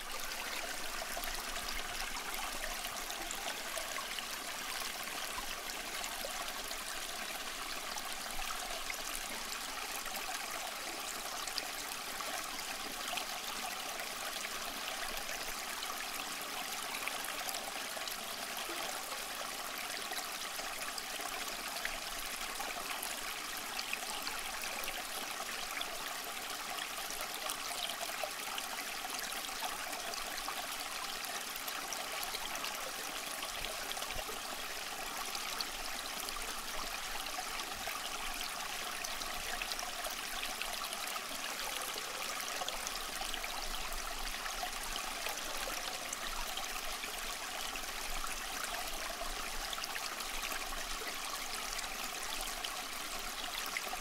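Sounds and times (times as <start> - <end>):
fountain water trickling: 16.8 - 54.0.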